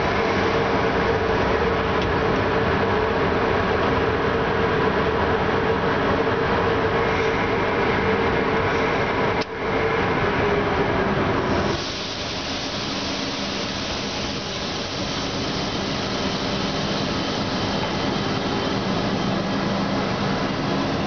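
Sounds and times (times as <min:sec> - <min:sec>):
brake hiss: 0:11.5 - 0:21.0.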